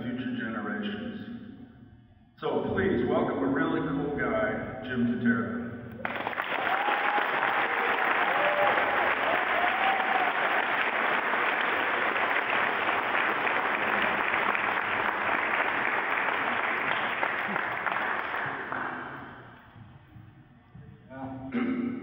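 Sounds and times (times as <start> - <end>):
audience applauding: 6.0 - 19.5.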